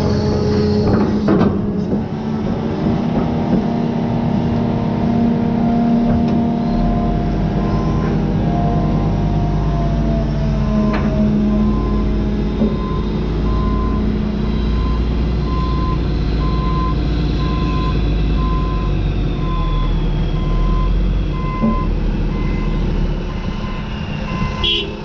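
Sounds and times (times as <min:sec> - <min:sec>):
diesel engine rumbling: 0:00.0 - 0:25.0
truck backup alarm beeping: 0:06.5 - 0:25.0.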